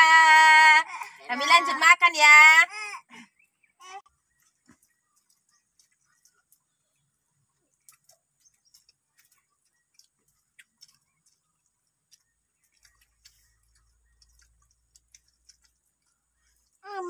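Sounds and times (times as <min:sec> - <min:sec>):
faint ticks and clicks: 0:04.3 - 0:16.8.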